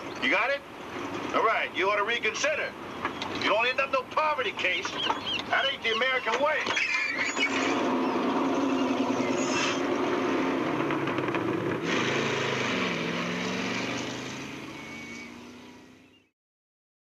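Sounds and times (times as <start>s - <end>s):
bus engine pulling away: 6.8s - 16.3s.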